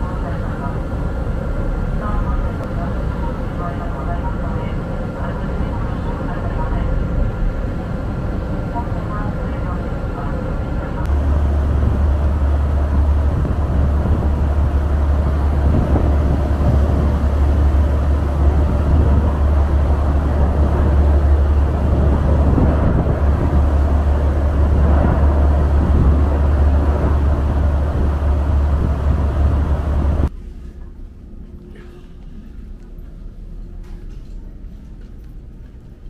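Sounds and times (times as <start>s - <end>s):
ferry engines droning: 0.0s - 36.0s
wind and water rushing: 4.8s - 30.3s.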